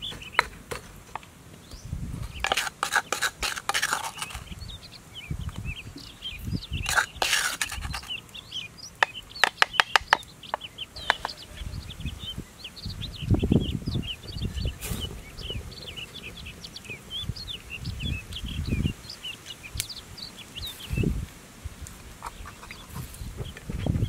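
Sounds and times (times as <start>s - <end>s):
birds chirping: 0.0s - 24.0s
metal spoon scraping stone mortar: 2.3s - 4.5s, 6.8s - 8.2s
sharp taps: 9.0s - 11.4s.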